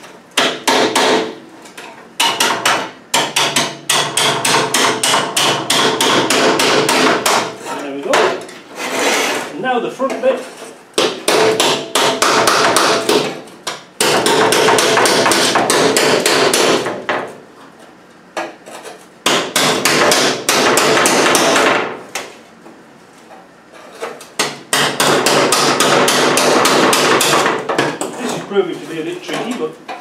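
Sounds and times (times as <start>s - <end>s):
hammer striking chisel on metal: 0.4s - 1.4s, 2.2s - 8.5s, 11.0s - 17.0s, 19.2s - 21.8s, 24.4s - 28.2s.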